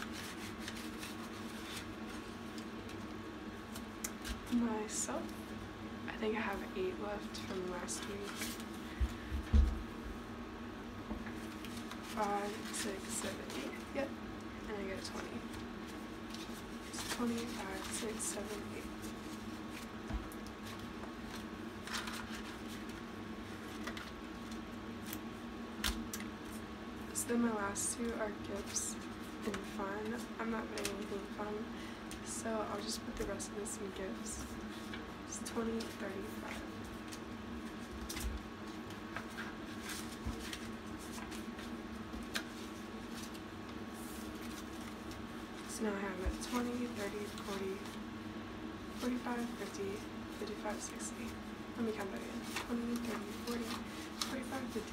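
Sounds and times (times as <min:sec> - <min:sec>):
plastic and paper rustling: 0:00.0 - 0:03.1, 0:06.3 - 0:09.8, 0:11.2 - 0:14.1, 0:14.7 - 0:26.6, 0:27.4 - 0:48.0, 0:48.9 - 0:54.9
faint steady hum: 0:00.0 - 0:54.9
banknotes and plastic pouches rustling: 0:11.4 - 0:14.1, 0:14.8 - 0:19.9, 0:20.5 - 0:25.3, 0:48.9 - 0:54.9.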